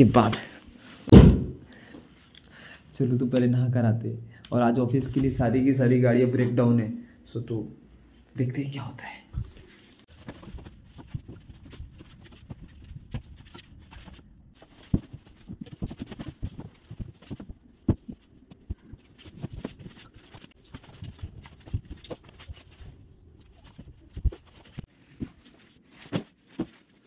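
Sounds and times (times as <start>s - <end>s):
sharp knocks: 1.1s - 1.6s
bedding thumps and rustles: 10.1s - 22.8s, 23.6s - 27.0s.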